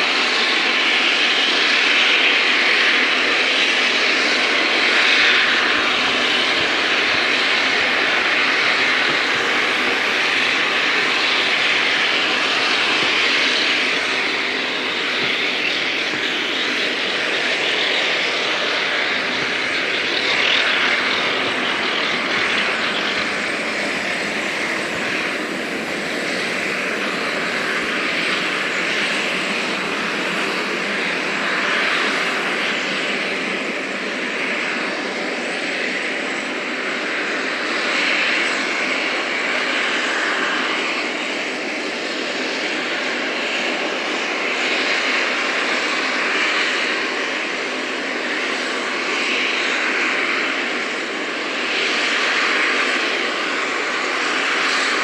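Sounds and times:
steam hissing: 0:04.5 - 0:34.9.

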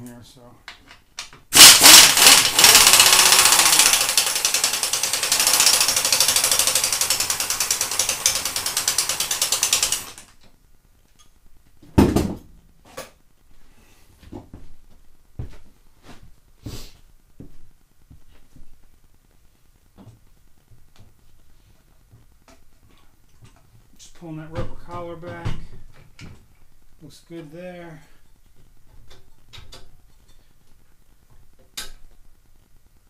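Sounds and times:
power ratchet buzzing: 0:01.5 - 0:10.3.

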